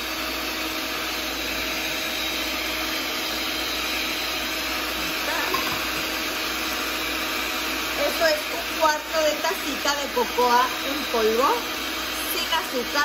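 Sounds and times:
stand mixer motor humming: 0.0 - 13.0.

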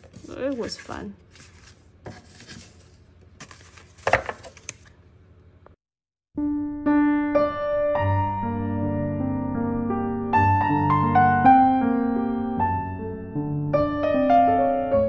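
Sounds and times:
paper cards rustling and tapping: 0.0 - 5.0
gentle piano music: 6.4 - 15.0.

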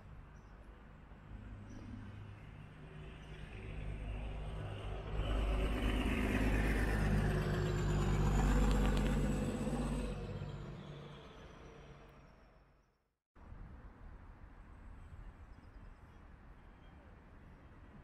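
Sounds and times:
bus passing by: 1.2 - 12.8.

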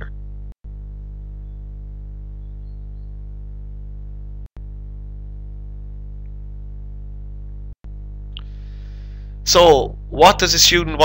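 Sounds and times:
low electrical mains hum: 0.0 - 11.0.

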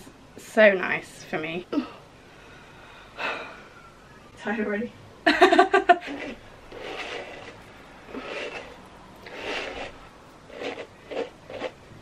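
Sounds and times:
hairbrush rubbing through wet hair: 6.0 - 11.8.

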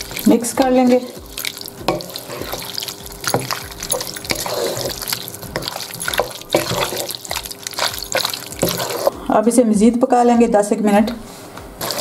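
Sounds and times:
wet squelching and sloshing: 0.0 - 9.2.

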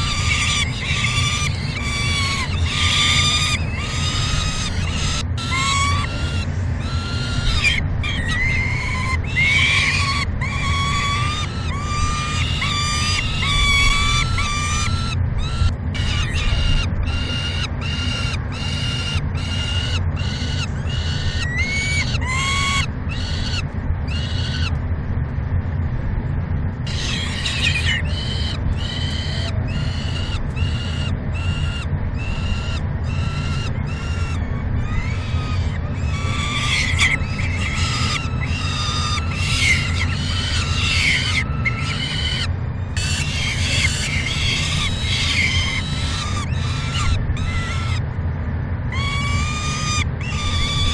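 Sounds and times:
falcons harsh repeated cries: 0.0 - 24.8, 26.8 - 48.1, 48.9 - 50.9
steady low hum: 0.0 - 50.9.

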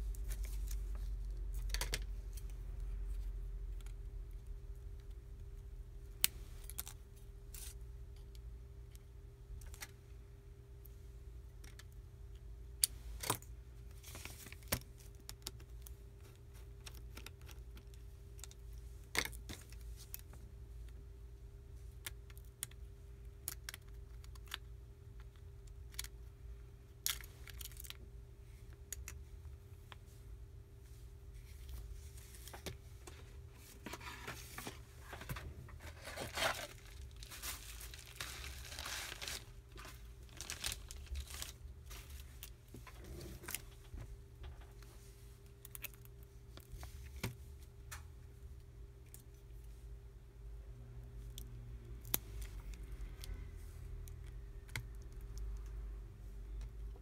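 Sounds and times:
faint steady hum: 0.0 - 57.0
plastic crinkling: 33.7 - 43.7.

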